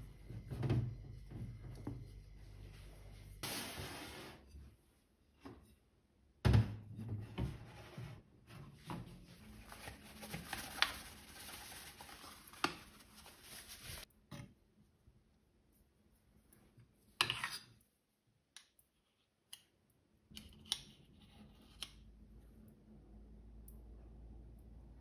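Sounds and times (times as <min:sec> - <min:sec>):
paper bag rustling: 0:09.4 - 0:14.1.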